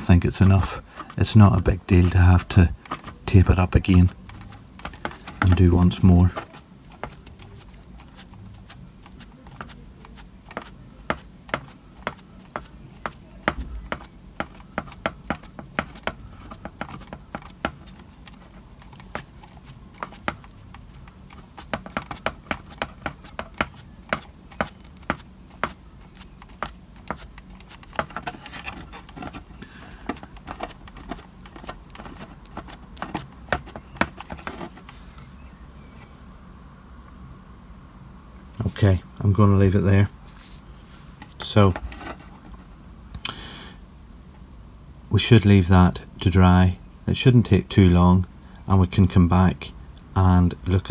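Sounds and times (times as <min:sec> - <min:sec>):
sponge tapping on stencil: 0:02.0 - 0:35.0.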